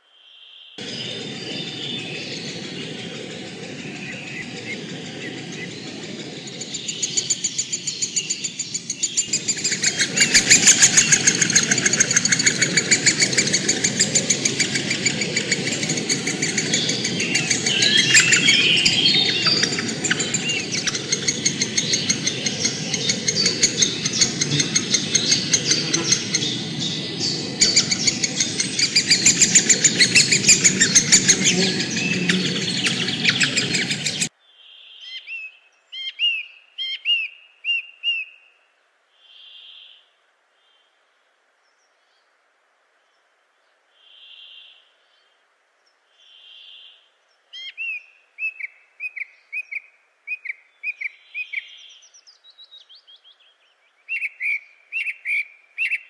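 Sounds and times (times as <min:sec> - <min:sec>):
small birds chirping: 0:00.8 - 0:34.3.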